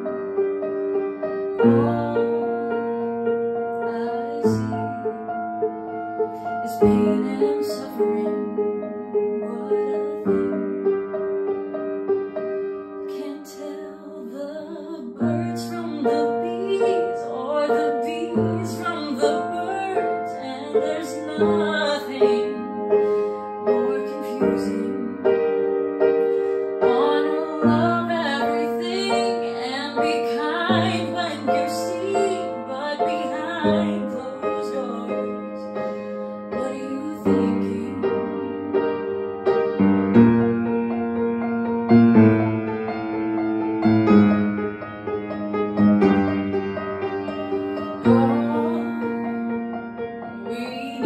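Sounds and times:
piano chords: 0.0 - 51.0
woman singing: 1.5 - 5.6, 6.3 - 10.8, 13.0 - 39.1, 47.3 - 49.4, 50.4 - 51.0.

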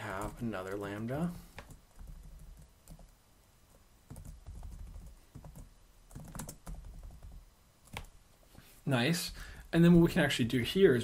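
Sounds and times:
computer keyboard typing: 0.0 - 3.2, 4.1 - 8.1.

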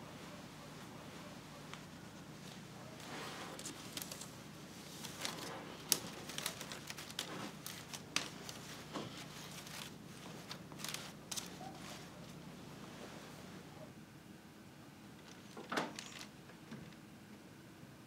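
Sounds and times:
cloth rustling and scraping: 0.2 - 13.8
wicker clicks and crackles: 1.7 - 12.4, 15.2 - 17.0.

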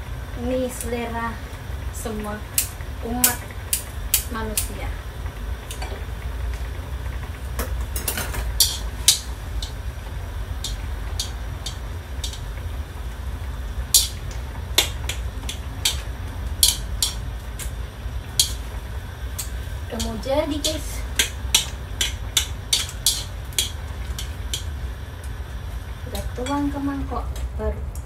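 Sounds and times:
steady low rumble: 0.0 - 28.0
chopsticks knocking on metal wok: 8.0 - 9.8, 13.9 - 17.7, 18.4 - 18.7, 19.4 - 24.7.

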